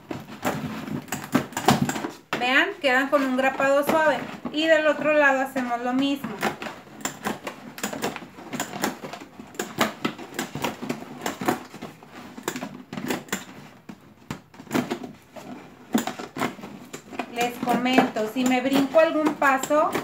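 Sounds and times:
cardboard rustling: 0:00.0 - 0:20.0
hand stapler clacking: 0:00.4 - 0:02.2, 0:06.3 - 0:11.8, 0:12.4 - 0:13.6.

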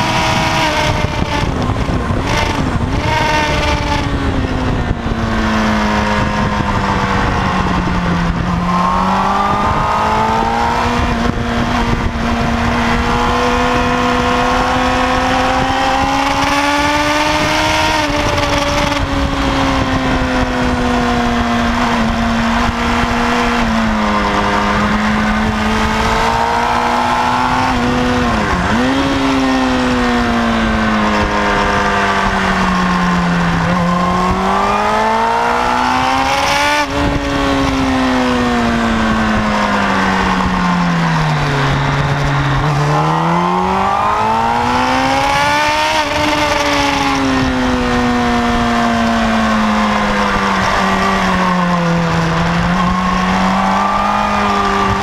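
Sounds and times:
motorcycle engine revving: 0:00.0 - 0:55.0
wind rush: 0:00.0 - 0:55.0.

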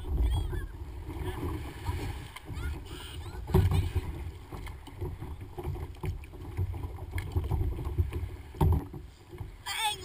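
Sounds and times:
paddle splashing: 0:00.0 - 0:10.0
water slapping kayak hull: 0:00.0 - 0:10.0.

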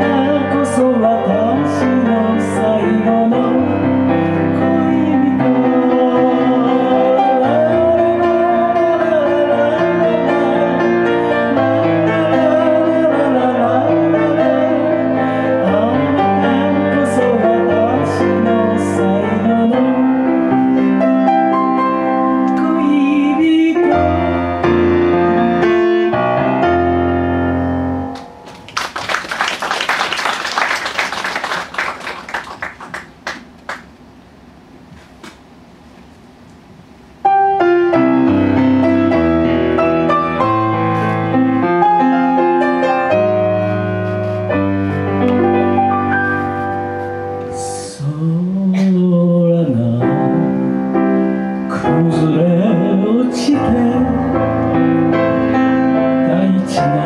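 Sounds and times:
piano accompaniment: 0:00.0 - 0:33.9, 0:37.1 - 0:57.0
audience applause: 0:28.2 - 0:33.9.

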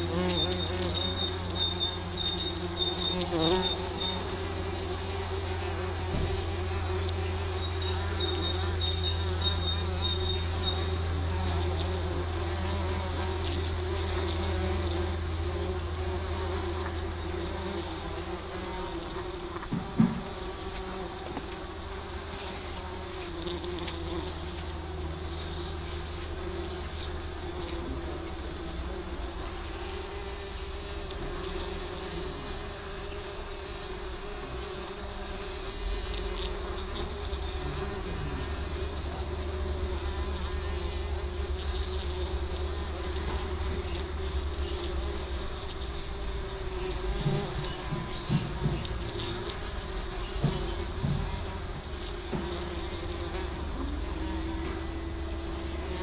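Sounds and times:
bumblebees buzzing: 0:00.0 - 0:56.0
brief knock: 0:06.1 - 0:06.4, 0:19.6 - 0:20.4.

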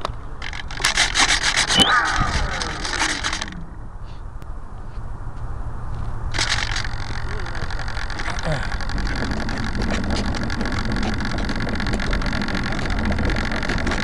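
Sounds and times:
low steady rumble: 0:00.0 - 0:14.0
buzzy electric motor and propeller: 0:00.5 - 0:03.9, 0:06.3 - 0:14.0
scraping on microphone: 0:07.9 - 0:14.0.

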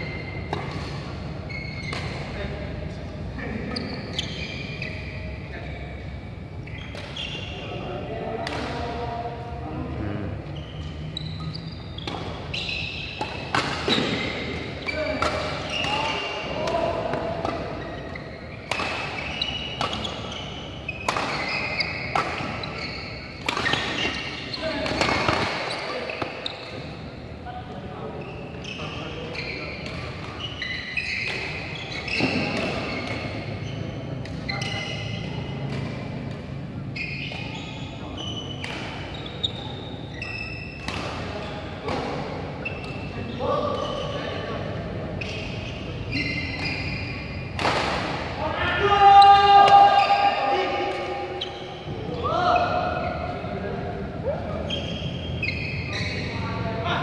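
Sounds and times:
shoes squeaking on court: 0:00.0 - 0:09.0, 0:09.9 - 0:27.3, 0:27.9 - 0:48.3, 0:49.2 - 0:53.5, 0:54.5 - 0:57.0
racket hitting shuttlecock: 0:00.4 - 0:01.2, 0:01.8 - 0:02.3, 0:12.0 - 0:26.8, 0:31.1 - 0:33.5, 0:40.8 - 0:43.1, 0:47.4 - 0:48.3.

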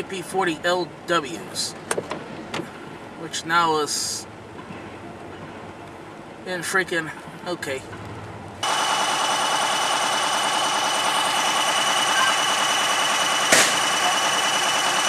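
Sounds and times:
train wheels rolling on rails: 0:07.8 - 0:15.0
high whine: 0:08.6 - 0:15.0
sharp metal clank: 0:13.5 - 0:13.9.

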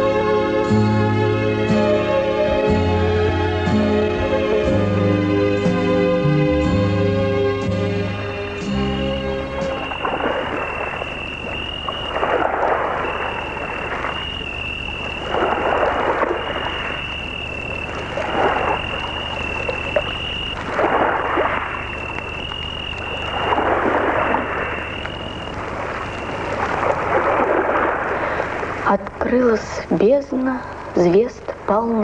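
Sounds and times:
rushing noise: 0:08.0 - 0:28.9
high thin insect trill: 0:08.1 - 0:28.2.

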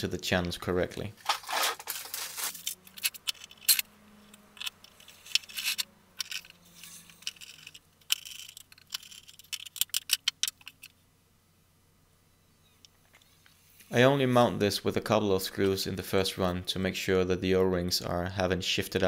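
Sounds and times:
faint low hum: 0:00.0 - 0:19.0
plastic parts clicking and tapping: 0:02.6 - 0:10.9.

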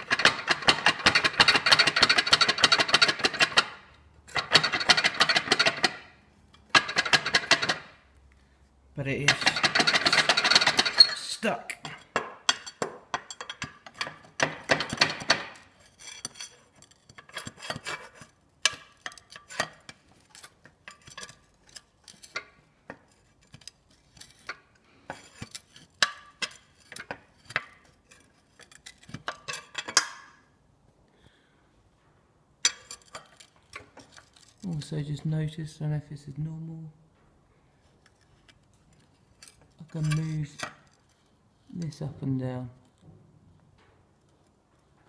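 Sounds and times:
pry bar scraping on metal: 0:00.0 - 0:08.0, 0:09.0 - 0:30.3, 0:38.1 - 0:41.2.

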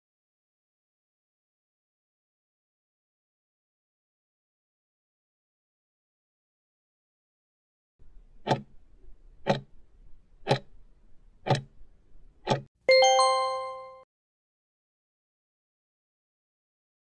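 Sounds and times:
clock ticking: 0:08.4 - 0:08.7, 0:09.4 - 0:09.7, 0:10.4 - 0:10.7, 0:11.4 - 0:11.7, 0:12.4 - 0:12.7
bell-like chime: 0:12.9 - 0:14.0.

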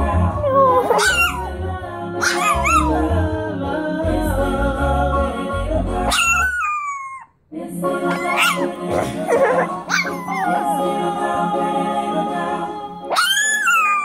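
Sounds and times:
reggae song: 0:00.0 - 0:06.5
puppy howling: 0:00.4 - 0:01.5, 0:02.2 - 0:03.0, 0:06.1 - 0:07.4, 0:08.1 - 0:10.8, 0:13.1 - 0:14.0.

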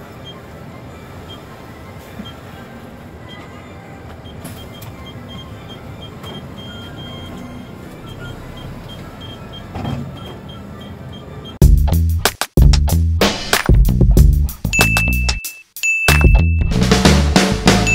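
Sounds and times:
bus engine and road noise: 0:00.0 - 0:11.6
faint high beeping: 0:14.8 - 0:16.7.

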